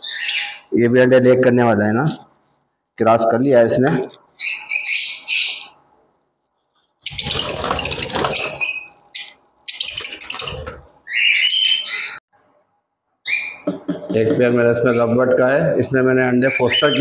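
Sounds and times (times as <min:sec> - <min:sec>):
lovebirds squawking: 0:00.0 - 0:00.7, 0:04.4 - 0:05.8, 0:07.0 - 0:12.2.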